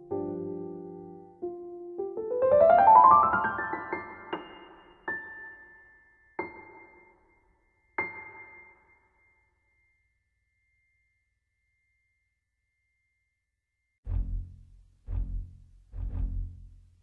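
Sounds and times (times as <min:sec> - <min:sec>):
deep low note: 0:14.1 - 0:17.0.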